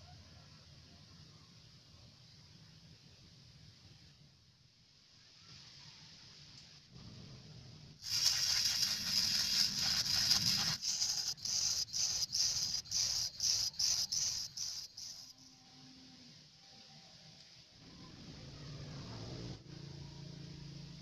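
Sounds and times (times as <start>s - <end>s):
sanding drum hissing on plastic: 8.0s - 15.3s.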